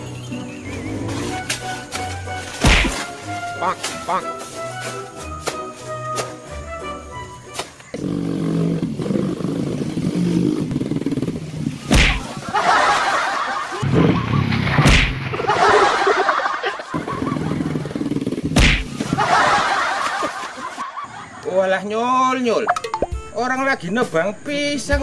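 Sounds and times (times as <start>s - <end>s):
loud sharp whacks: 1.4s - 3.2s, 11.9s - 12.4s, 13.9s - 15.4s, 18.5s - 19.2s.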